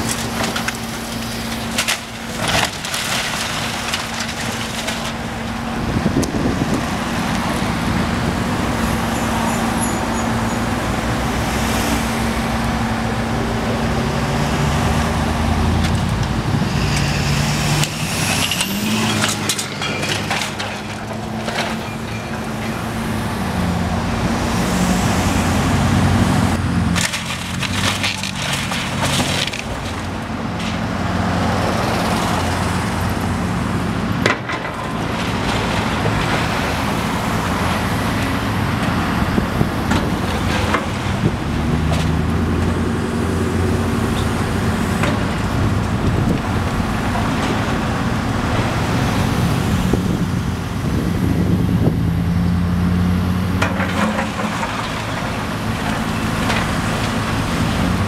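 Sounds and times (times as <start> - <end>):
debris cracking and knocking: 0.0 - 7.7, 17.8 - 23.1, 26.9 - 32.8, 34.2 - 42.9, 53.6 - 58.0
excavator diesel engine revving: 0.0 - 34.2.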